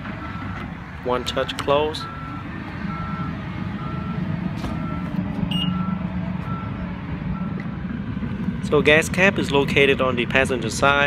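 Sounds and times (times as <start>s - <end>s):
warning chime beeps: 4.8s - 6.8s.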